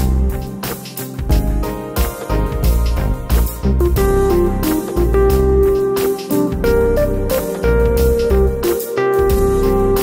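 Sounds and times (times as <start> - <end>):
deep pulsing bass: 1.3 - 5.8, 6.6 - 8.7.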